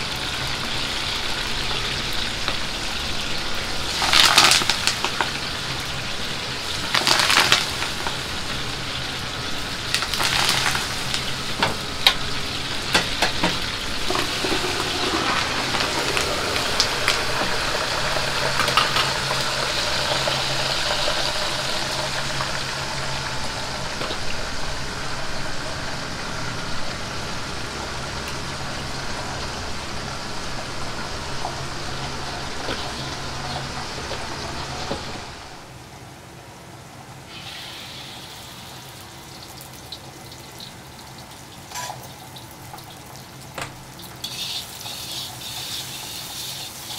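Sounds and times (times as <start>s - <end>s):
oil crackling: 0.0s - 35.7s
oil sizzling deep-frying: 0.0s - 46.9s.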